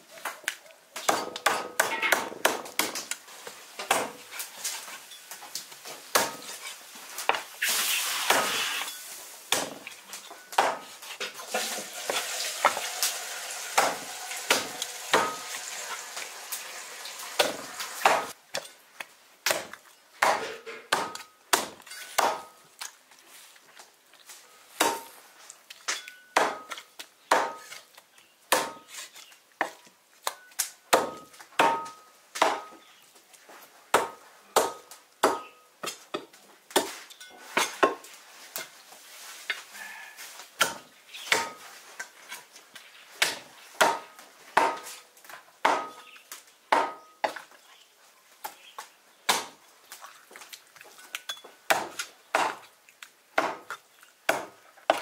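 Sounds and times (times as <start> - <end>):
cleaver chopping through bone: 19.4 - 22.5, 26.4 - 27.8, 28.5 - 28.9, 43.2 - 44.9, 45.6 - 46.0, 53.4 - 55.0.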